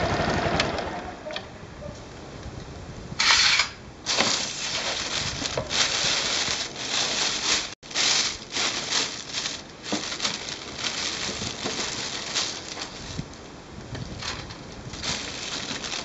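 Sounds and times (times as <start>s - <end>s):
plastic bag rustling: 4.0s - 16.0s.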